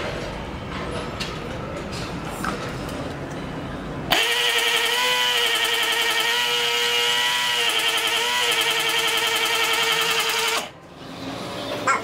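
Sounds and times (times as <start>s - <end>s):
air compressor whining: 4.1s - 11.9s.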